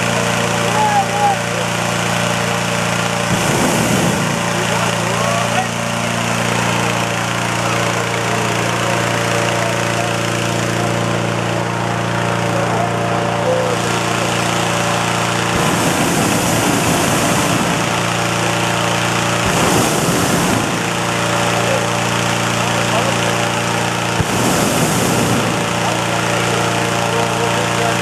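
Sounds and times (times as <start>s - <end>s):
inflator fan engine running: 0.0s - 28.0s
balloon burner flame blast: 2.7s - 7.2s, 14.0s - 22.6s, 23.4s - 27.0s.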